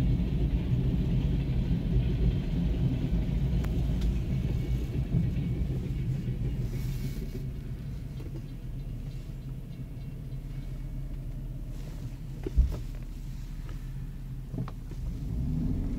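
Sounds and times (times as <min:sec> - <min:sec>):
low rumble inside car: 0:00.0 - 0:15.9.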